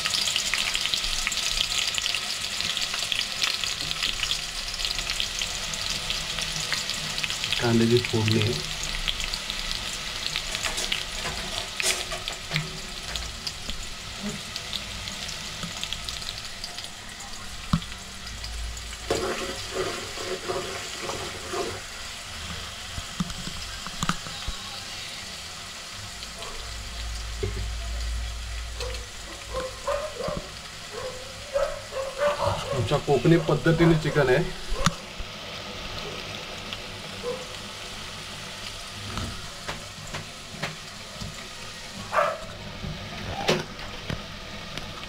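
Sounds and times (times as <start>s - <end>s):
onions sizzling in oil: 0.0s - 45.0s
spoon scraping a pot: 19.1s - 21.8s.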